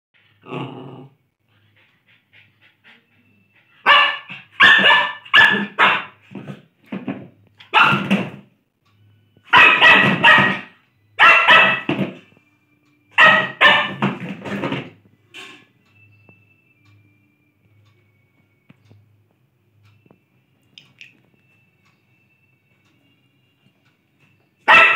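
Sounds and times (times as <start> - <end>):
dog barking: 3.8 - 6.2, 7.6 - 8.1, 9.5 - 11.9, 13.2 - 14.0, 24.7 - 24.9.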